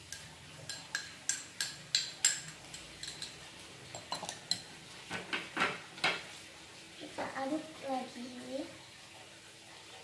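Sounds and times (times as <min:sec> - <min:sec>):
metal spoon clinking on glass jar: 0:00.1 - 0:04.6.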